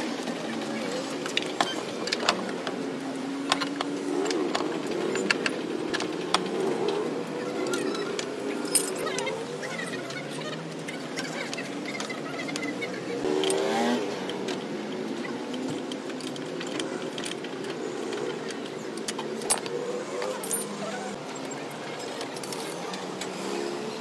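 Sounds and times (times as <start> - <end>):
wheel brace clinking on nuts: 15.4 - 21.2.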